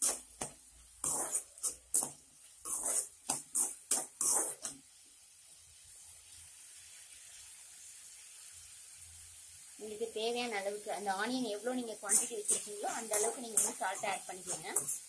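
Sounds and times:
metal ladle scraping pan: 0:00.0 - 0:04.8, 0:12.0 - 0:15.0
onions sizzling in oil: 0:00.0 - 0:15.0.

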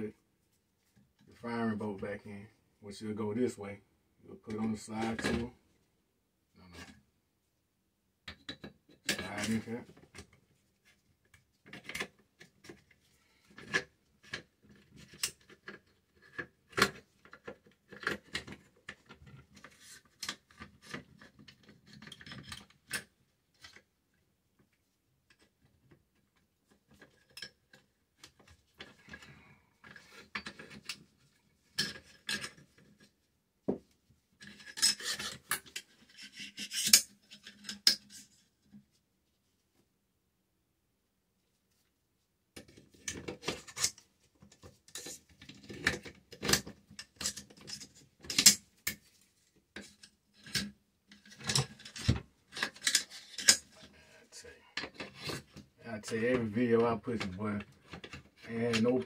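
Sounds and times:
metal parts sliding scrapes: 0:34.4 - 0:38.3.

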